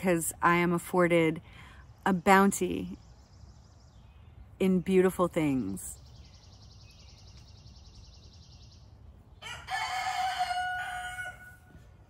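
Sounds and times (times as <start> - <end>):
rooster crowing: 9.4 - 11.8.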